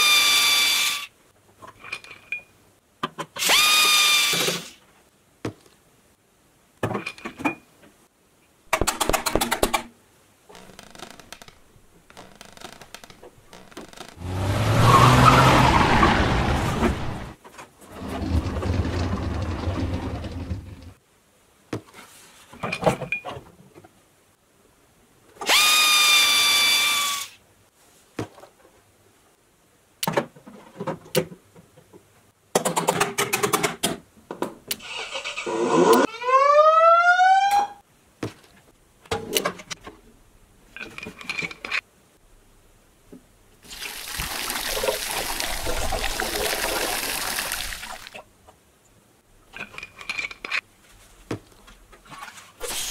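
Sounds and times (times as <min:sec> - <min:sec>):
water poured into plastic bottle: 0:43.6 - 0:48.2.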